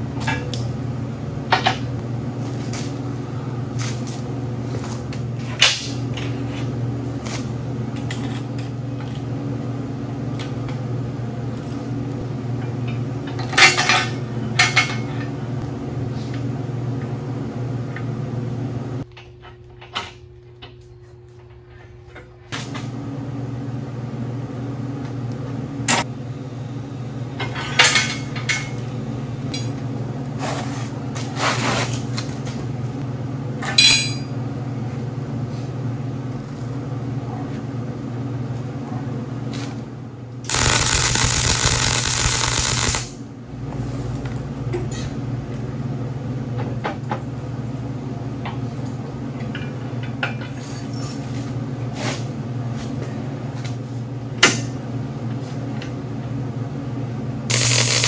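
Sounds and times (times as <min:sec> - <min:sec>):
steady machine hum: 0:00.0 - 0:50.2, 0:51.5 - 0:58.0
welding arc hiss: 0:40.5 - 0:43.2, 0:57.5 - 0:58.0.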